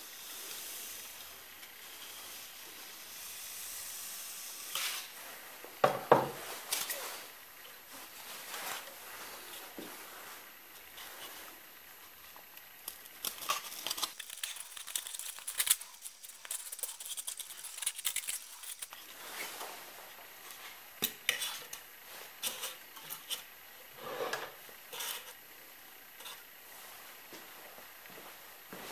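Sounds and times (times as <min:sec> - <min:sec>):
foam rubbing and crinkling: 0:06.3 - 0:12.3, 0:13.0 - 0:25.4.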